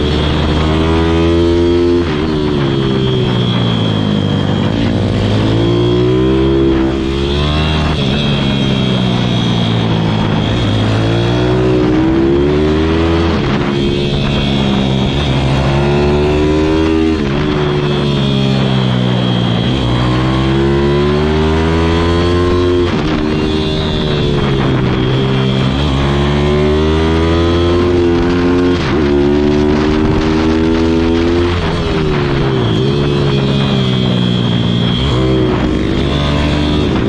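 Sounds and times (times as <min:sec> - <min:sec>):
motorbike engine revving: 0:00.0 - 0:37.0.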